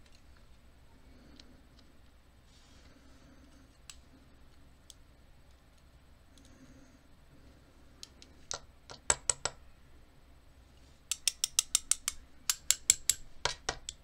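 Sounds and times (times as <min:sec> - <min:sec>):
small metal clicks: 0:11.1 - 0:14.0.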